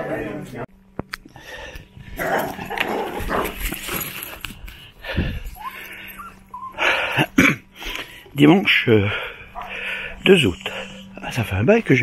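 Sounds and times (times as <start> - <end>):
dog whining and yipping: 5.6 - 6.8.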